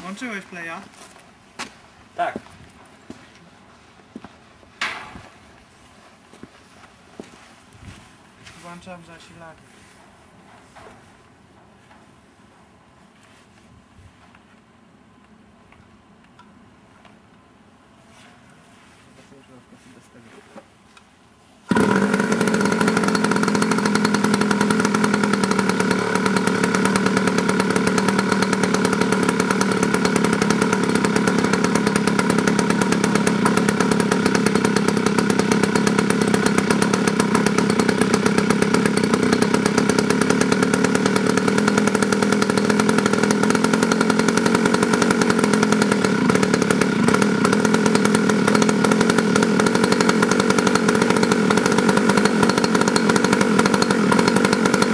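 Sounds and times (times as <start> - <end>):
two-stroke model engine running: 21.7 - 54.9.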